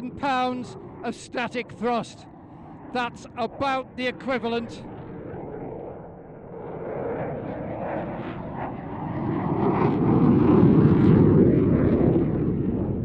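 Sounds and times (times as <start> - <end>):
jet passing overhead: 0.0 - 13.0.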